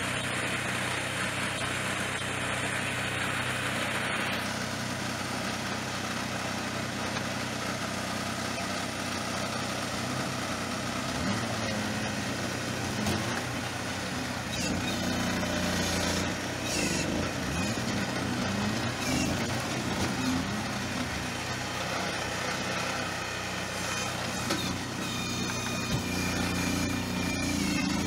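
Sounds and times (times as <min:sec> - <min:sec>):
digger engine running: 0:00.0 - 0:28.0.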